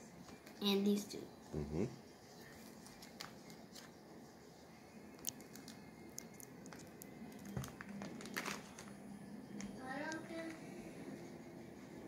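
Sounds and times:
plastic sleeves crinkling: 0:06.7 - 0:08.9.

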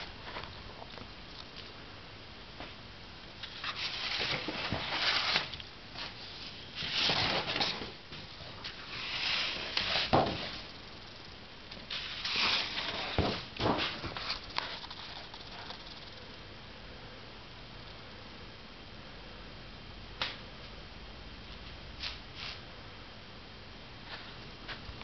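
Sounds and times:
rustling and handling noise: 0:00.0 - 0:01.8, 0:03.4 - 0:16.2.

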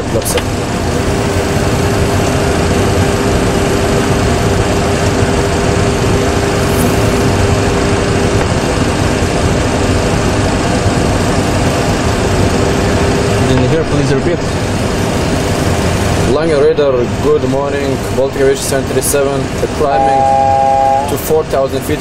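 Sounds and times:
aircraft engine and airflow noise: 0:00.0 - 0:22.0
steady hum: 0:00.4 - 0:13.6, 0:18.9 - 0:21.5.

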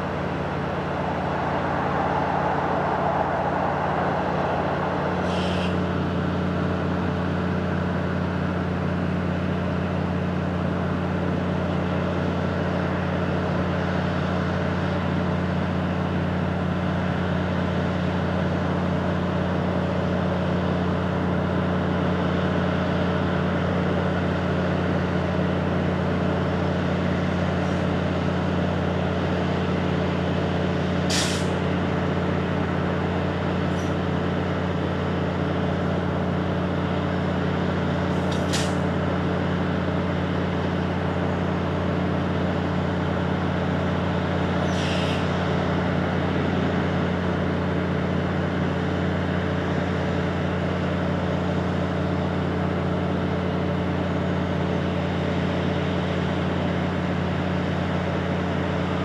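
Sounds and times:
diesel train idling: 0:00.0 - 0:59.0
air brake hisses: 0:05.2 - 0:05.8, 0:31.1 - 0:31.6, 0:38.3 - 0:38.8, 0:44.6 - 0:45.3.

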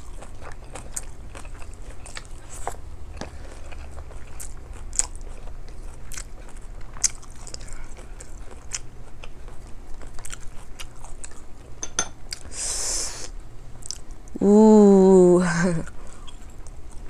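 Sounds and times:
person chewing food: 0:00.0 - 0:12.5, 0:13.8 - 0:14.2, 0:15.9 - 0:17.0
low steady hum: 0:00.0 - 0:17.0.

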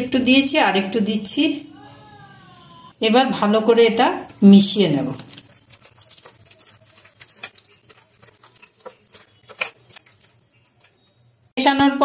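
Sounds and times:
hand squishing prawns in paste: 0:04.3 - 0:11.5.

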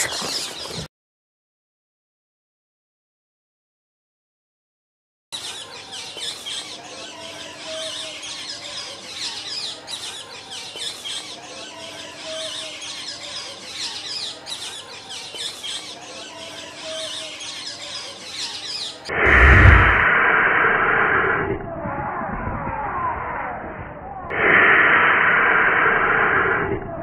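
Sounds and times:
small birds chirping: 0:00.0 - 0:00.9, 0:05.4 - 0:20.0.

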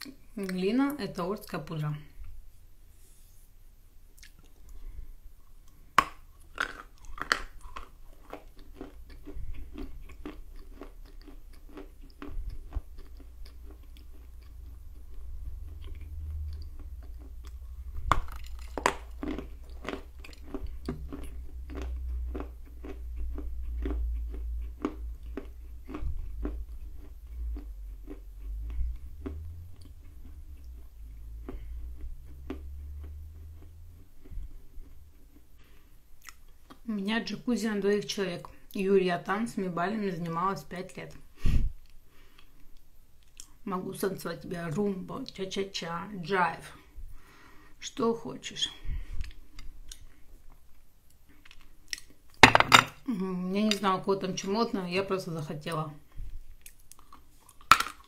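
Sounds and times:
crunchy chewing: 0:05.4 - 0:36.9, 0:56.2 - 0:58.0
crunching bites: 0:05.8 - 0:35.4.

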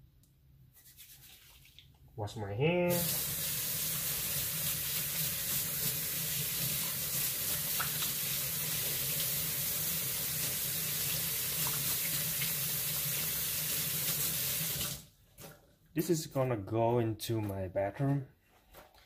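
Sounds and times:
tap water running into sink: 0:02.9 - 0:15.0.

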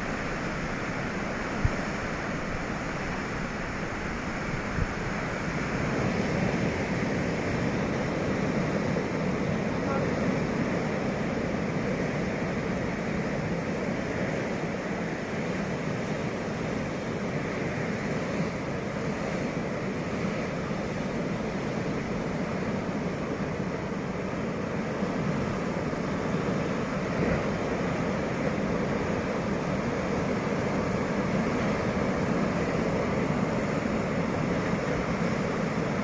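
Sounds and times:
surf breaking on rocky shore: 0:00.0 - 0:36.0
wind: 0:00.0 - 0:36.0.

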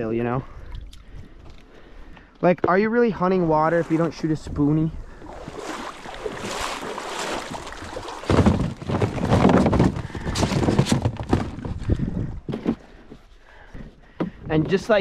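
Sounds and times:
plastic decoys rustling and knocking: 0:07.4 - 0:15.0.

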